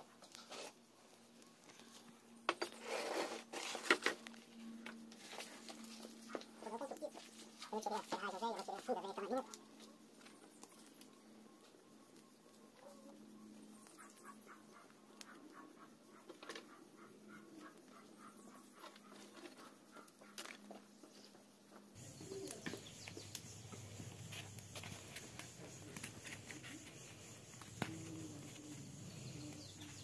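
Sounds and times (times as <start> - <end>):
low background noise: 0.0 - 30.0
bird calling: 22.0 - 30.0
wood fire crackling: 22.0 - 30.0.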